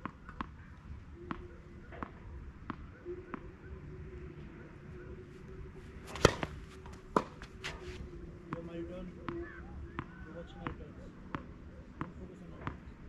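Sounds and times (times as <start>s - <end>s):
faint steady hum: 0.0s - 13.0s
tennis ball bouncing on clay: 1.3s - 3.5s, 6.1s - 7.8s
racket hitting tennis ball: 6.0s - 8.0s.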